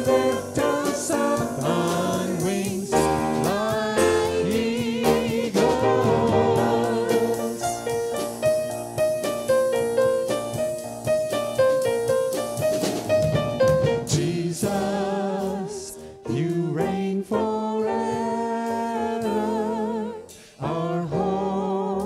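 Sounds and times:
person singing with vibrato: 0.0s - 8.5s, 14.1s - 22.0s
piano notes: 0.0s - 22.0s.

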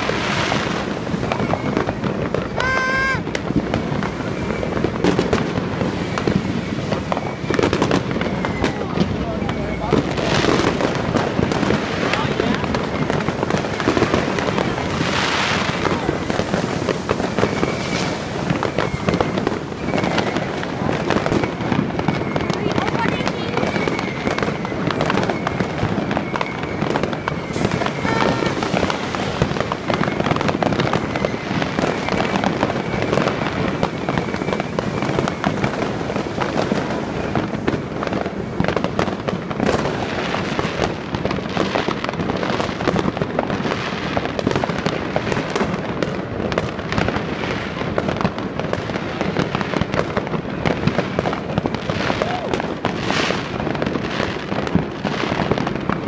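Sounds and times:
high steady whistling tone: 0.0s - 3.2s, 4.1s - 5.0s, 6.0s - 10.2s, 15.0s - 20.5s, 23.6s - 35.8s
fireworks and firecrackers bangs: 0.0s - 56.0s.

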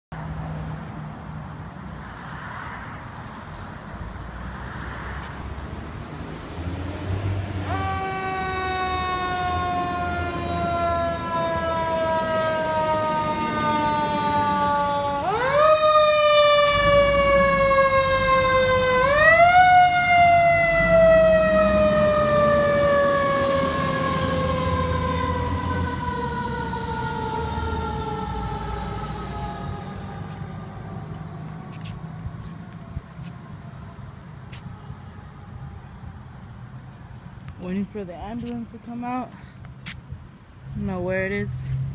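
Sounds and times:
engine and traffic rumble: 0.1s - 41.9s
fire engine siren wailing: 7.2s - 36.4s.

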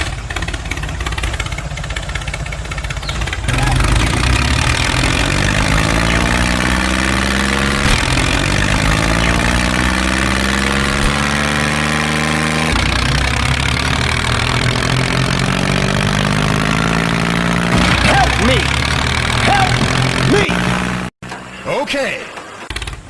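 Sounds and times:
tractor engine idling: 0.0s - 23.0s.

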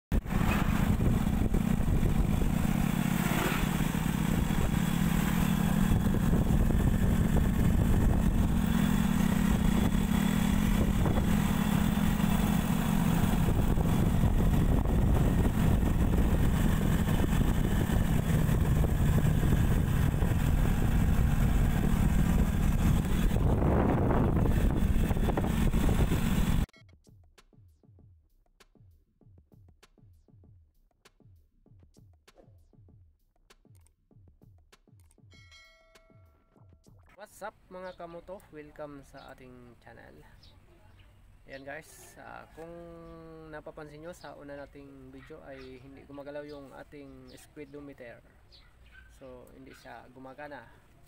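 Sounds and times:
motorcycle engine running: 0.1s - 26.7s
wind and road noise: 0.1s - 26.7s.

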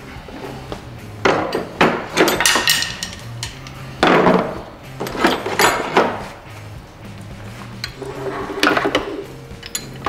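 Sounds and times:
metal knocks and clinks: 1.2s - 6.2s, 8.6s - 10.0s.

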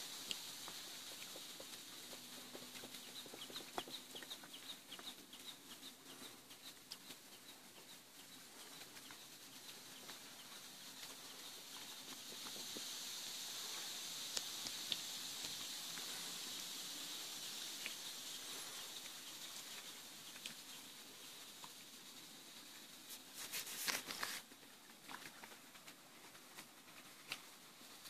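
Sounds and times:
birds chirping: 0.0s - 22.0s
faint steady hiss: 0.0s - 28.0s.

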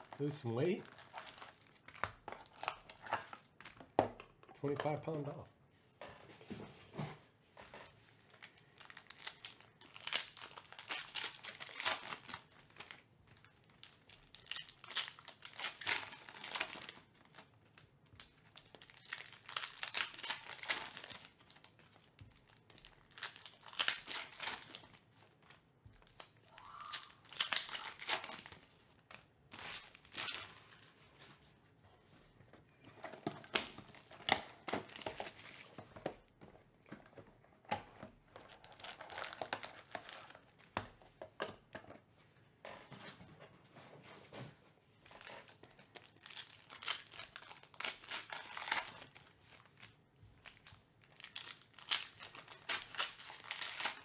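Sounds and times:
foil wrappers tearing and crinkling: 0.0s - 3.4s, 8.3s - 13.0s, 13.6s - 30.9s, 38.5s - 40.5s, 45.1s - 54.0s.

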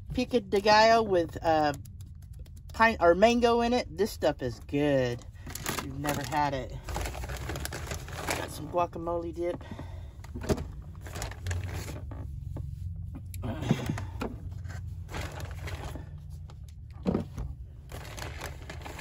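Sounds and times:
bags rustling: 5.5s - 8.6s, 10.4s - 12.2s, 17.9s - 19.0s.

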